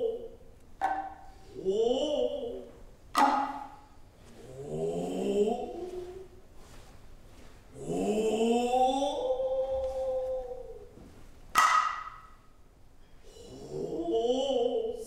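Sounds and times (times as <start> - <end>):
person calling out drawn-out: 1.4 - 2.8, 4.4 - 6.4, 7.8 - 11.0, 13.3 - 15.0.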